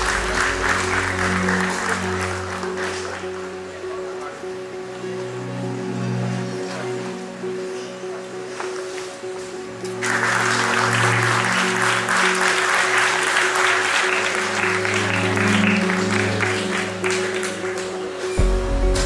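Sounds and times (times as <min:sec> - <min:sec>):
audience applauding: 0:00.0 - 0:04.0, 0:09.7 - 0:18.4
music with held notes: 0:00.0 - 0:19.0
deep bass: 0:18.4 - 0:19.0.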